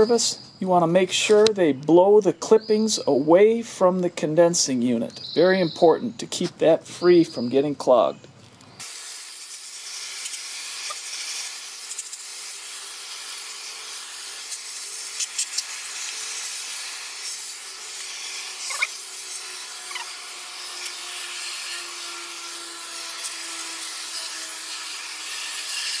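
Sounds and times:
hiss of hose water spray: 8.8 - 20.2.

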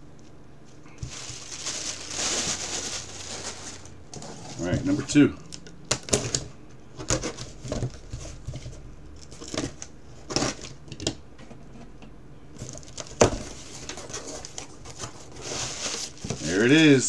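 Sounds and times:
cardboard scraped and handled: 1.0 - 5.0, 13.4 - 16.6.

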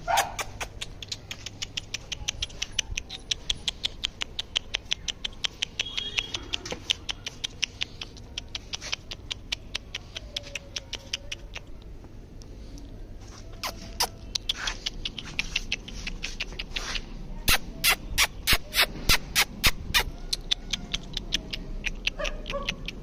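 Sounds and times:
rapid even clicking: 0.4 - 11.9.

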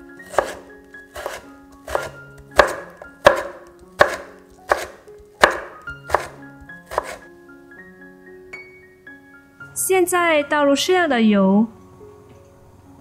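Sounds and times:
light background music: 0.0 - 13.0
knife chopping on wooden board: 0.2 - 7.3.

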